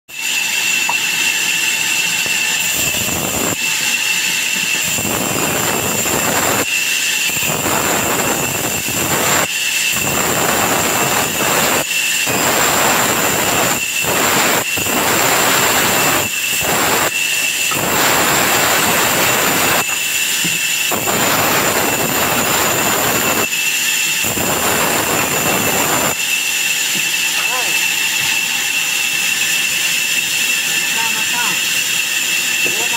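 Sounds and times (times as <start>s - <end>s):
band saw whining: 0.1s - 32.9s
saw rasping through wood: 8.1s - 32.9s.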